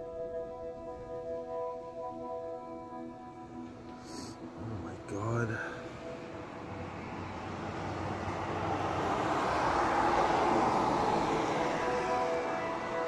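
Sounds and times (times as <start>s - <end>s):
car driving past: 6.0s - 13.0s.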